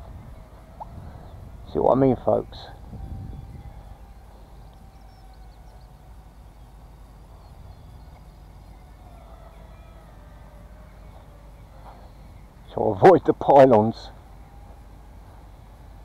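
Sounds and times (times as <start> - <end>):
wind rumble on microphone: 0.0 - 6.1
toy plane electric motor whine: 2.7 - 12.3.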